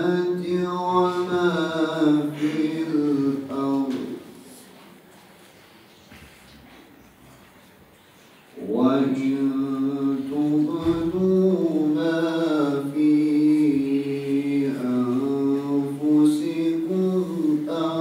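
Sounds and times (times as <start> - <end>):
man chanting recitation: 0.0 - 4.7, 8.6 - 18.0.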